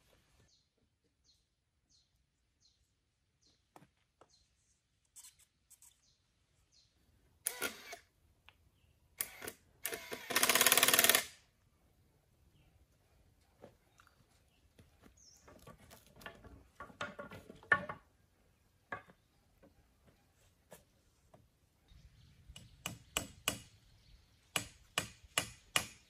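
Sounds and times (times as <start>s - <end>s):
power drill boring into bamboo: 7.4s - 8.0s, 9.2s - 11.4s.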